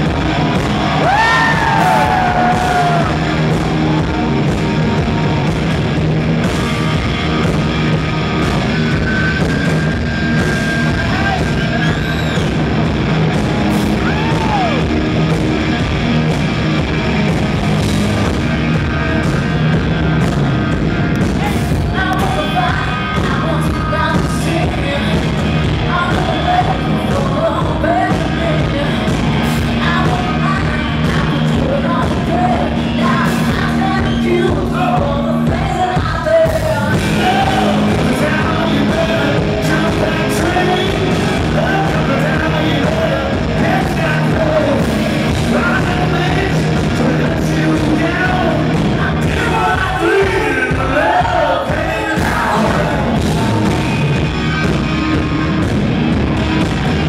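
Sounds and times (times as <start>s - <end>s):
electric guitar with bent notes: 0.0s - 35.7s, 36.6s - 57.0s
live rock band: 0.0s - 57.0s
person singing: 21.4s - 53.8s.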